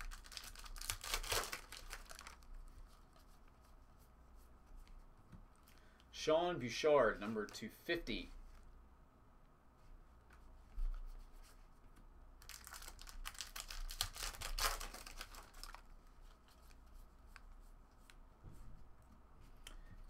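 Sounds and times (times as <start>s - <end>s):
foil wrapper crinkling and tearing: 0.0s - 2.6s, 12.4s - 15.9s
soft clicks of cards handled: 4.7s - 6.1s, 16.2s - 20.0s.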